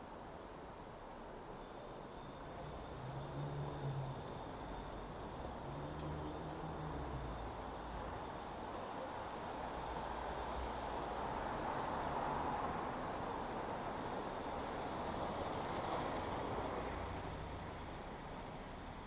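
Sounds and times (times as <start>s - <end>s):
vehicle engine and tyre noise: 2.4s - 8.7s.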